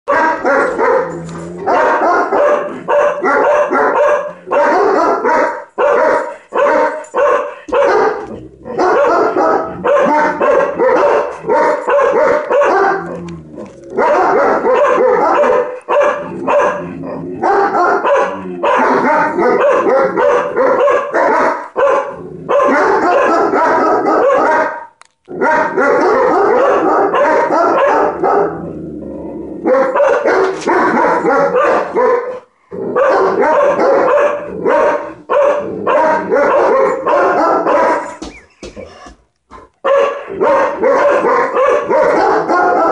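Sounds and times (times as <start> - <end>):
dog barking rapidly: 0.1 - 13.1, 14.0 - 28.6, 29.7 - 38.3, 39.8 - 42.9.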